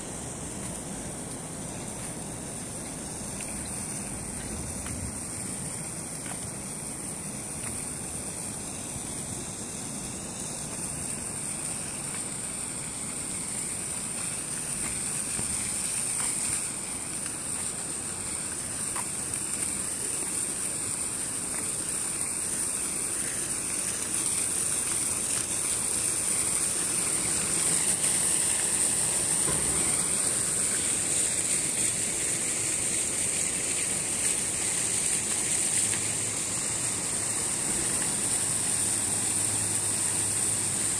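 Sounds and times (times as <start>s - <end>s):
fountain water splashing: 0.0s - 40.9s.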